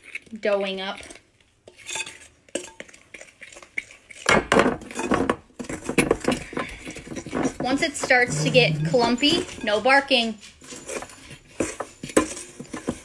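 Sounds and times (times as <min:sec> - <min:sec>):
fork stirring dough in glass bowl: 0:01.0 - 0:06.5.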